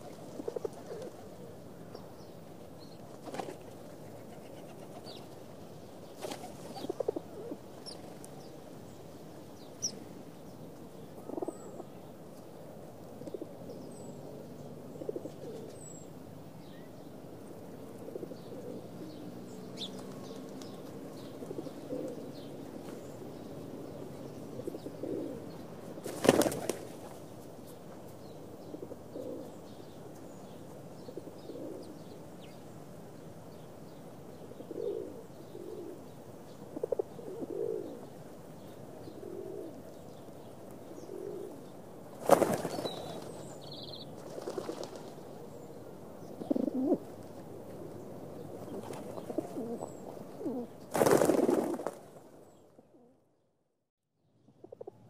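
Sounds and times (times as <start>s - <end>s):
pigeons cooing: 0.0s - 1.5s, 6.2s - 8.2s, 11.2s - 11.9s, 14.9s - 15.8s, 17.8s - 19.1s, 19.8s - 23.2s, 24.3s - 27.0s, 28.6s - 29.6s, 31.0s - 32.1s, 34.6s - 38.2s, 39.0s - 40.0s, 40.8s - 43.4s, 46.2s - 51.8s
wingbeats flurry: 6.2s - 7.2s, 26.0s - 27.3s, 42.2s - 43.6s, 44.2s - 45.4s, 50.9s - 52.2s.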